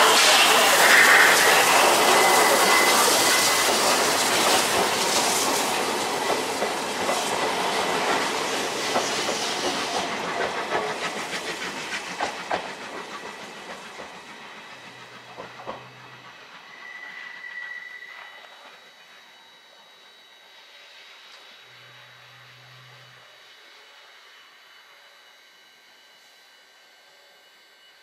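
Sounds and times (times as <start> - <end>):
train wheels clacking on rails: 0.0 - 19.2
steam locomotive hissing: 0.0 - 27.8.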